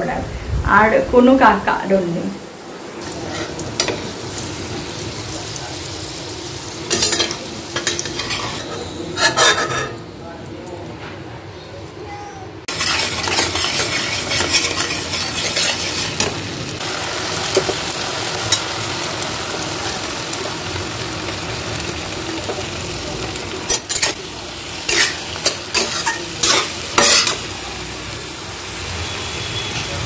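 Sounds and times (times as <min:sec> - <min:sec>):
masala sizzling in a pan: 0:01.2 - 0:10.5, 0:12.6 - 0:30.0
spatula stirring: 0:06.9 - 0:10.0, 0:12.7 - 0:16.4.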